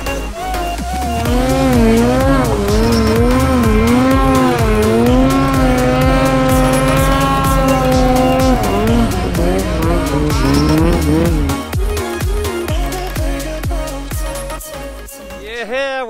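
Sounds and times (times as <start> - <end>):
electronic music: 0.0 - 13.4
snowmobile engine at high revs: 0.9 - 11.6.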